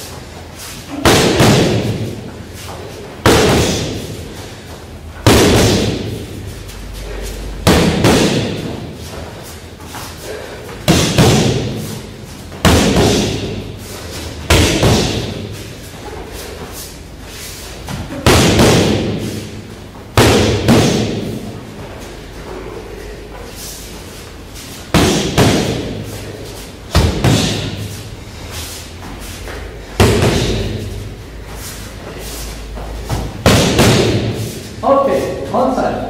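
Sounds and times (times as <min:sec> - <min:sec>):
punches slapping focus mitts: 0:01.0 - 0:02.1, 0:05.2 - 0:06.2, 0:07.6 - 0:08.8, 0:10.8 - 0:12.0, 0:12.6 - 0:13.6, 0:14.4 - 0:15.4, 0:17.9 - 0:19.4, 0:20.2 - 0:21.4, 0:25.0 - 0:26.0, 0:26.9 - 0:27.8, 0:30.0 - 0:30.8, 0:33.1 - 0:34.4.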